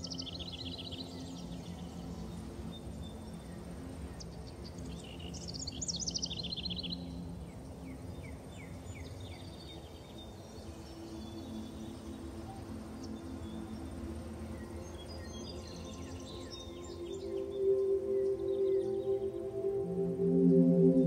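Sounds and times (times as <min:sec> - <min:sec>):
soft ambient music: 0:00.0 - 0:21.0.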